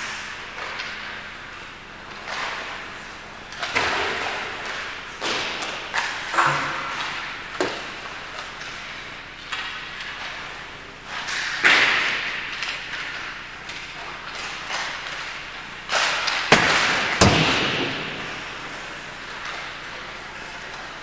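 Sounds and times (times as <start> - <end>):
sharp knocks echoing in hall: 3.6 - 8.1, 11.1 - 20.6.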